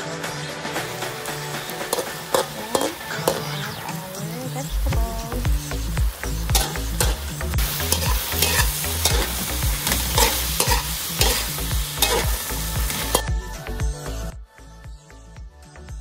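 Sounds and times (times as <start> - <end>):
food sizzling in oil: 0.7 - 13.3
metal spatula scraping a wok: 1.6 - 4.2, 6.5 - 13.3.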